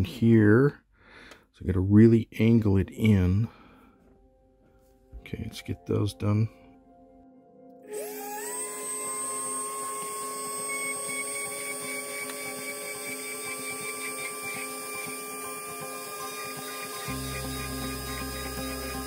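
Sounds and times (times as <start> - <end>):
rotary tool whining: 7.9 - 19.0.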